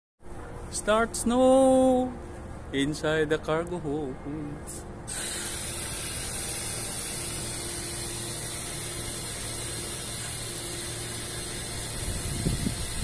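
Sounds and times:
steady hiss: 0:05.1 - 0:13.0.

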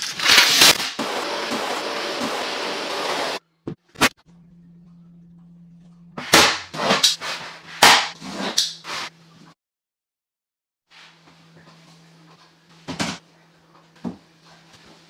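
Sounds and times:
vacuum cleaner running: 0:00.2 - 0:03.4.

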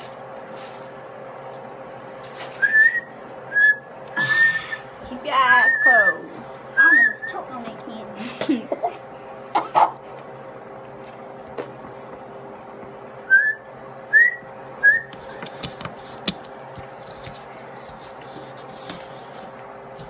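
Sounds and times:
steady low hum: 0:00.0 - 0:20.0
person whistling rising notes: 0:02.6 - 0:04.8, 0:13.3 - 0:15.2.

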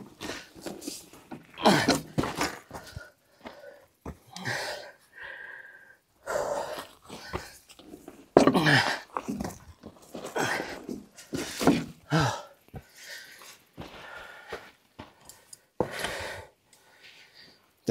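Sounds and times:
person breathing hard: 0:01.6 - 0:07.6, 0:10.2 - 0:17.7.

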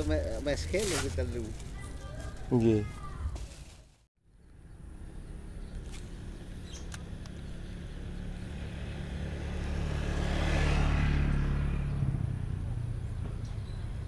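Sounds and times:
vehicle passing by: 0:04.7 - 0:14.0.

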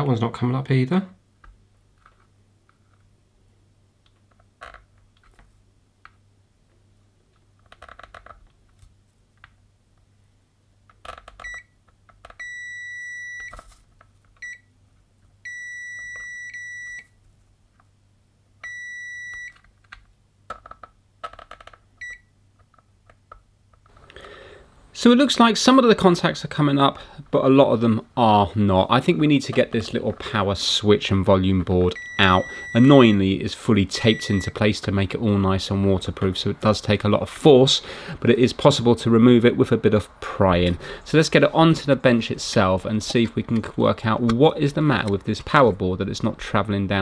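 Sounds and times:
multimeter continuity beeps: 0:12.4 - 0:13.6, 0:15.5 - 0:17.1, 0:18.6 - 0:19.6, 0:31.9 - 0:33.3, 0:34.0 - 0:34.6.

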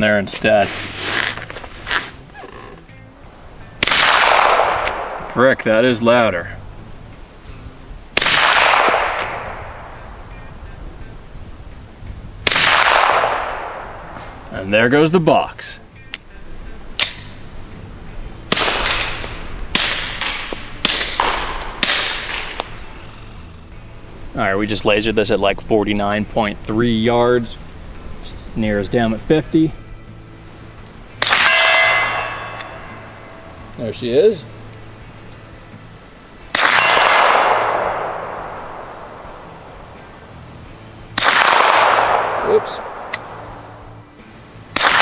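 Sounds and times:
suppressed pistol shots: 0:03.8 - 0:05.5, 0:08.2 - 0:10.0, 0:12.4 - 0:14.4, 0:17.0 - 0:17.3, 0:18.5 - 0:22.8, 0:31.2 - 0:33.2, 0:36.5 - 0:39.4, 0:41.2 - 0:43.8, 0:44.7 - 0:45.0.

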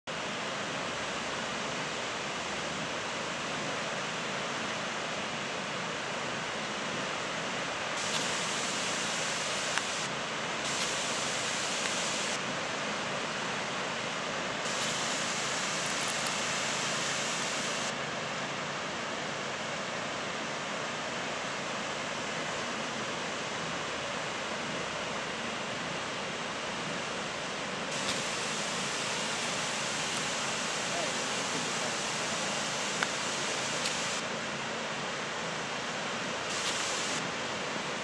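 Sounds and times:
waterfall rushing: 0:08.0 - 0:10.1, 0:10.7 - 0:12.4, 0:14.7 - 0:17.9, 0:28.0 - 0:34.2, 0:36.5 - 0:37.4.

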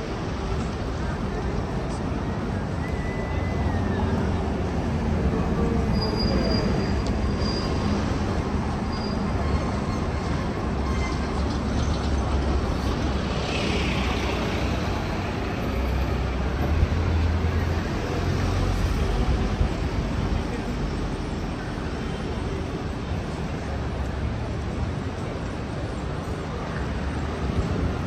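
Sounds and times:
faint high squeal: 0:02.8 - 0:04.3, 0:05.8 - 0:07.9, 0:08.9 - 0:11.4.

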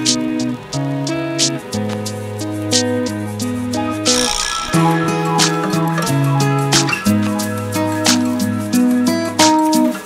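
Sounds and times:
held instrumental notes: 0:00.0 - 0:10.0.

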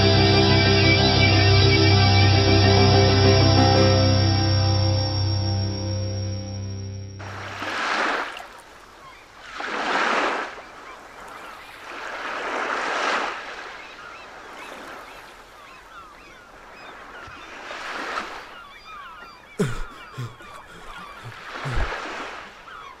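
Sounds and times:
surf washing onto beach: 0:07.2 - 0:08.8, 0:09.4 - 0:13.8
faint birds chirping: 0:18.4 - 0:23.0.

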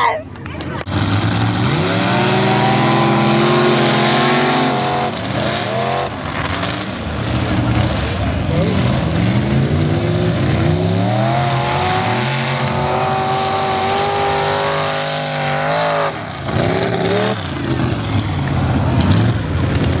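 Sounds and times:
truck engine at full throttle: 0:00.5 - 0:20.0.

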